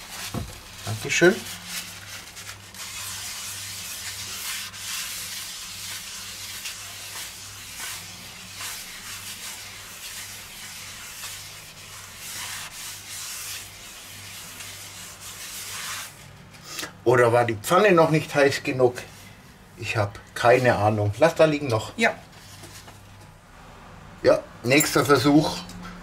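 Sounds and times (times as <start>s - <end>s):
paper rubbing a frying pan: 0.0s - 16.5s.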